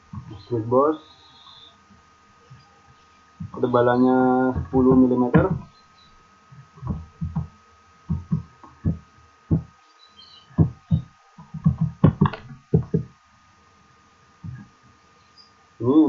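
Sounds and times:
faint high whine: 0.0s - 16.0s
keyboard and mouse clicks: 10.6s - 13.0s.

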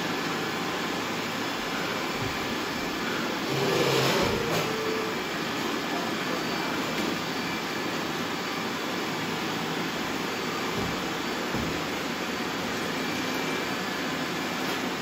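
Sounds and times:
robot vacuums whirring: 0.2s - 15.0s
short tone: 3.5s - 5.2s.

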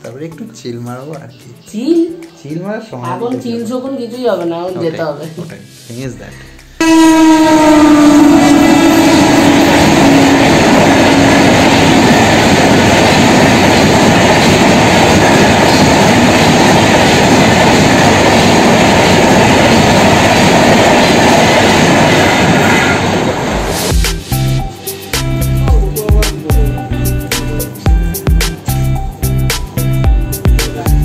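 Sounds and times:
passenger train passing: 6.5s - 31.0s
train horn: 6.8s - 13.3s, 21.7s - 23.9s.

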